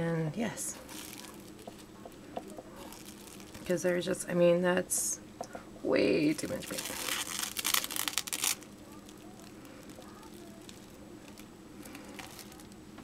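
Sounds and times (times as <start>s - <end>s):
plastic wrap crinkling: 0.6s - 4.1s, 6.2s - 12.9s.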